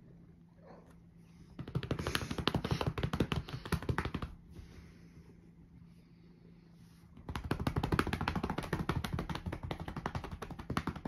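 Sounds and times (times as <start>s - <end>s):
hand patting a cat: 1.6s - 4.7s, 7.2s - 11.0s.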